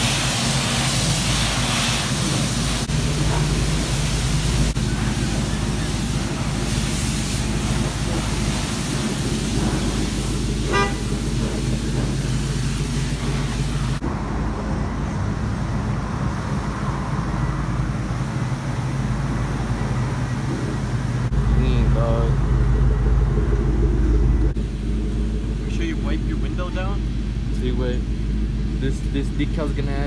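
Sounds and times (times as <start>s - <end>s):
pressure washer spray hissing: 0.0s - 14.0s
truck engine idling: 0.0s - 30.0s
short horn toot: 10.6s - 11.2s.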